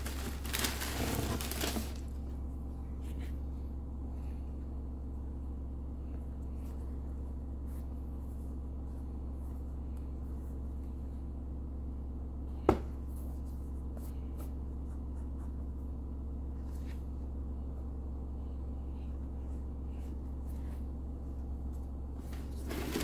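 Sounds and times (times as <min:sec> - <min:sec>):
low steady hum: 0:00.0 - 0:23.0
rustling and scratching of sneaker: 0:19.6 - 0:23.0.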